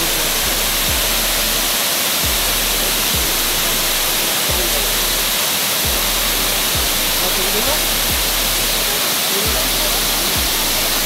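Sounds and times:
music with thudding beat: 0.0 - 11.0
waterfall rushing: 0.0 - 11.0.

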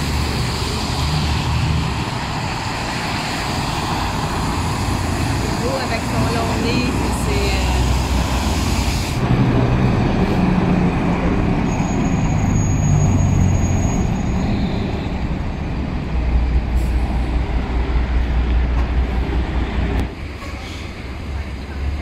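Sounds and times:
diesel truck engines running: 0.0 - 22.0
passing street traffic: 0.0 - 22.0.

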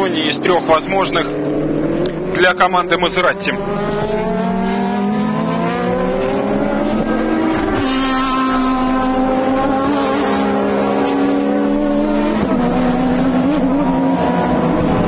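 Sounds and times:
race car engines at full throttle: 0.0 - 15.0.

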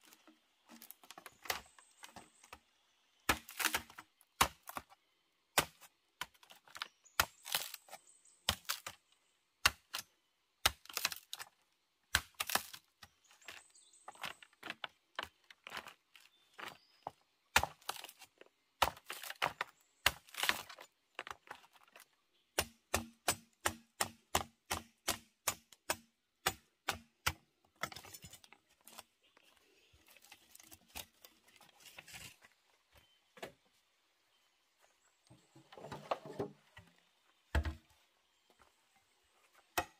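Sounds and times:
machete splitting bamboo: 3.2 - 9.0, 9.6 - 13.6, 17.5 - 20.8, 22.6 - 28.1.

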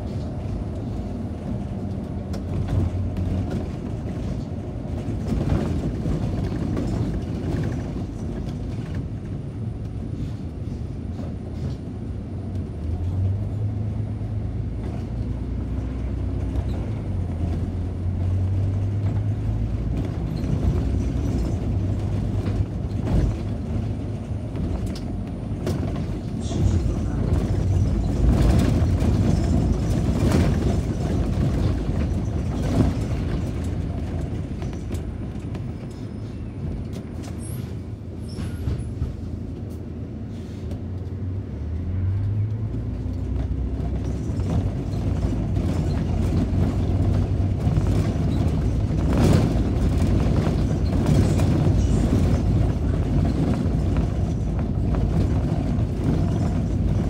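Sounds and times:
bus engine drone: 0.0 - 57.0
road rumble: 0.0 - 57.0
knocks and rattles: 14.8 - 35.7, 43.2 - 57.0.

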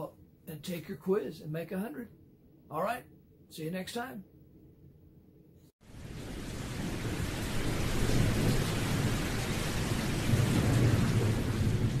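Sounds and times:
heavy rain hissing: 5.8 - 12.0
thunder rumbling: 5.8 - 12.0.

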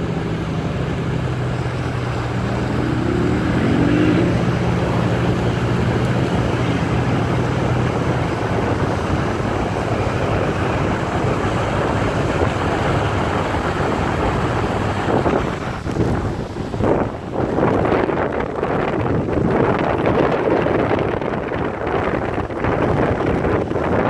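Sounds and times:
low engine drone: 0.0 - 17.2
car engine and tyre noise: 0.0 - 24.0
wind rushing over microphone: 0.0 - 24.0.

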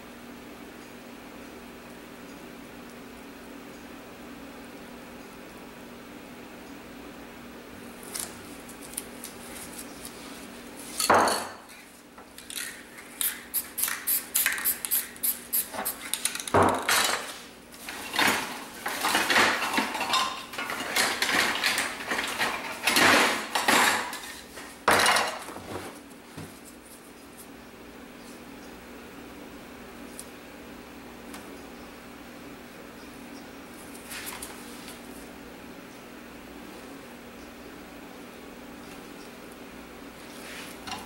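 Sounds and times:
spray can ball rattling: 12.5 - 16.6.

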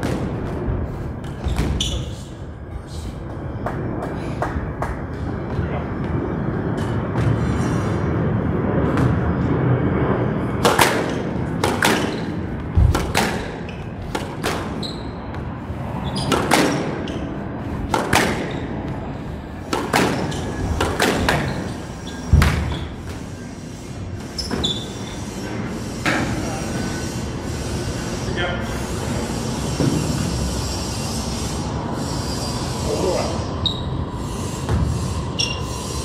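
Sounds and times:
racket striking ball: 10.6 - 15.4, 16.2 - 17.0, 17.9 - 19.0, 19.6 - 21.5.

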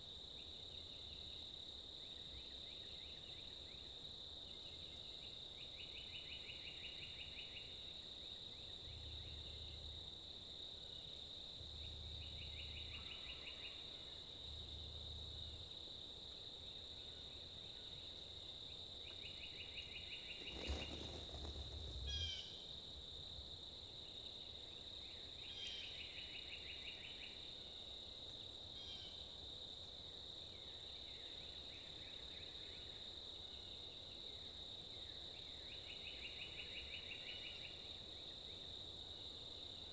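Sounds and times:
high insect buzz with trills: 11.0 - 27.7.

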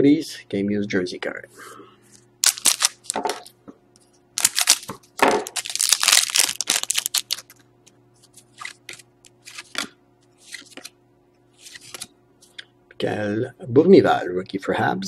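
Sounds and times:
foil wrapper crinkling and tearing: 2.4 - 3.2, 4.4 - 7.6
cards rustling and clicking: 2.4 - 3.5, 4.4 - 7.6, 8.2 - 10.9, 11.6 - 12.6.

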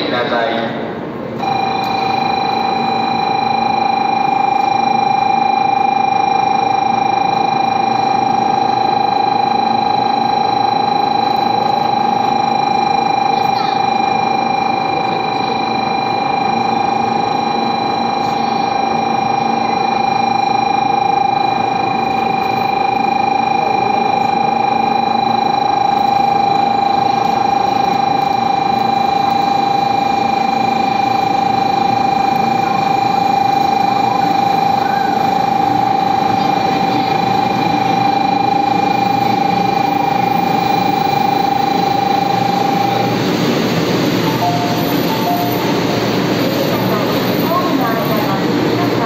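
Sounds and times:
electronic buzzer tone: 1.4 - 49.0
train rolling in: 38.6 - 49.0.

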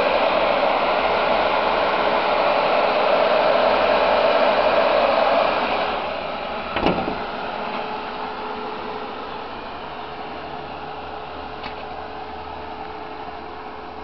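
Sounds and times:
diesel engine running: 5.0 - 14.0.

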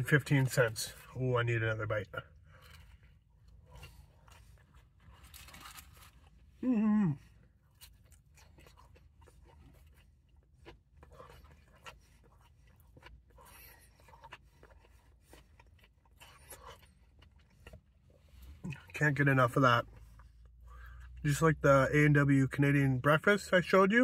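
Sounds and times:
crunchy chewing: 2.3 - 18.9.

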